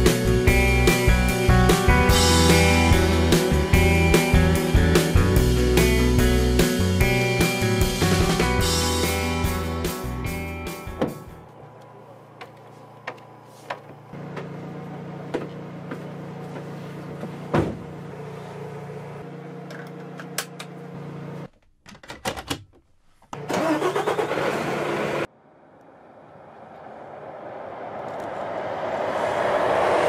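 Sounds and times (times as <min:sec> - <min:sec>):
truck approaching: 0:00.0 - 0:20.2, 0:23.6 - 0:30.0
truck engine hum: 0:00.0 - 0:21.5, 0:23.6 - 0:30.0
heavy thump: 0:17.5 - 0:17.9.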